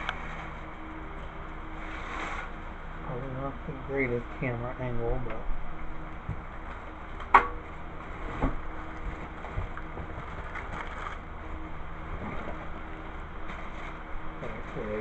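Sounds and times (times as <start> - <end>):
steady low hum: 0.0 - 15.0
plastic wrapping rustling: 8.2 - 11.2.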